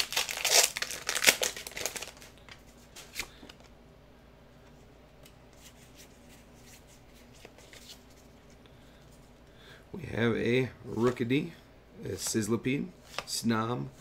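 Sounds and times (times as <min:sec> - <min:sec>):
foil wrapper crinkling: 0:00.0 - 0:02.3
trading cards being handled: 0:05.2 - 0:09.1.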